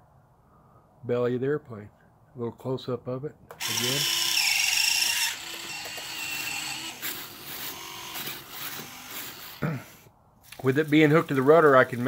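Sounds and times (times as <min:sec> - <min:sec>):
small servos whirring: 0:03.6 - 0:10.0.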